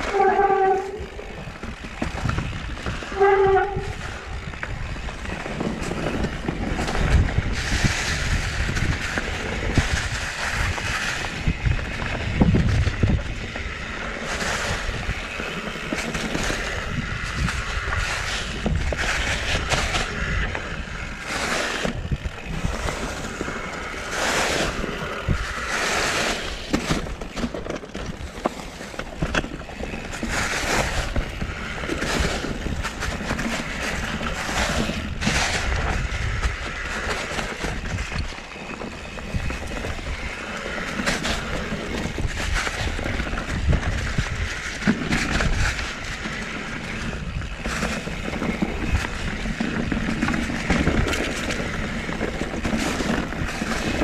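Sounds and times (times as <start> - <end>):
bike rattling and clicking: 0.0 - 54.0
tyres rumbling over dirt and rocks: 0.0 - 54.0
wind buffeting microphone: 0.0 - 54.0.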